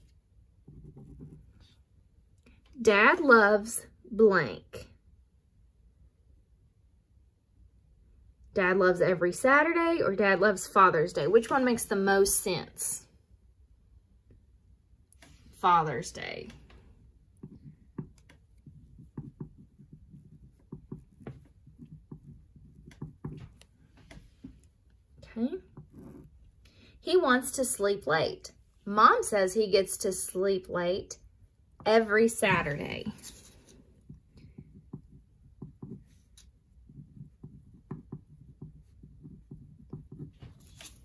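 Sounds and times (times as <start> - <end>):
pen scratching on paper: 0.0 - 1.8, 17.2 - 24.8, 25.5 - 26.7, 31.9 - 41.0.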